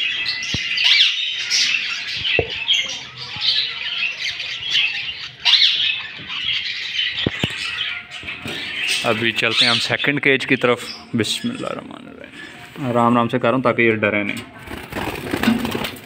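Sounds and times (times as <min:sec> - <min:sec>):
budgerigars chattering and squawking: 0:00.0 - 0:12.0.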